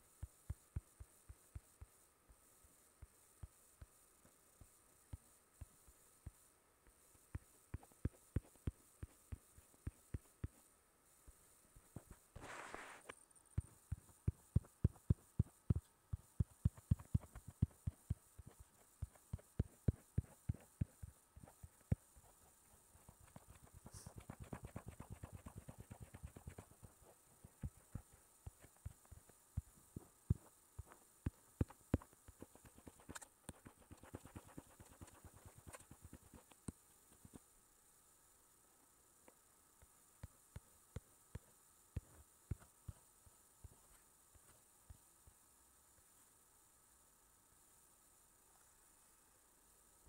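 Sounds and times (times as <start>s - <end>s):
stylus tapping on touchscreen: 13.6s - 22.1s.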